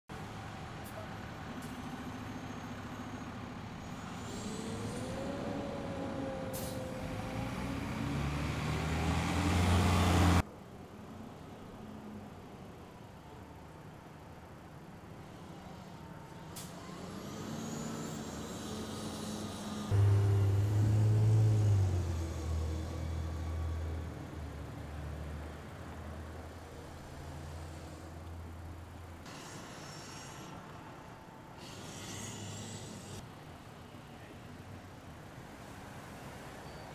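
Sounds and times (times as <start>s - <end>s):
street traffic: 0.1s - 36.9s
heavy vehicle engine rumble: 0.2s - 10.4s, 15.0s - 33.2s
cars passing: 2.1s - 10.4s, 15.2s - 33.6s.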